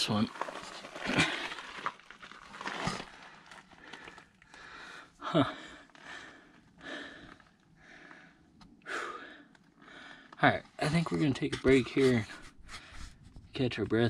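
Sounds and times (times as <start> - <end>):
person breathing heavily: 3.1 - 10.4.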